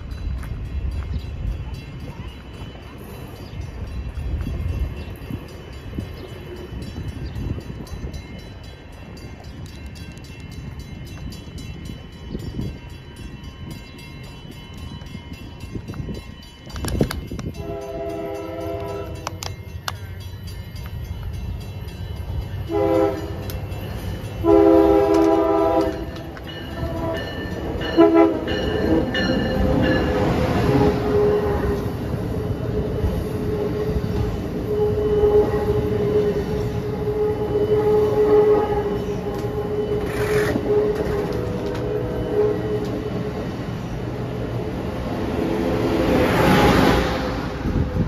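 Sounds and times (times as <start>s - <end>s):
train passing at speed: 0.0s - 48.0s
train horn blasts: 17.5s - 19.5s, 22.6s - 23.7s, 24.3s - 32.0s, 33.5s - 43.5s.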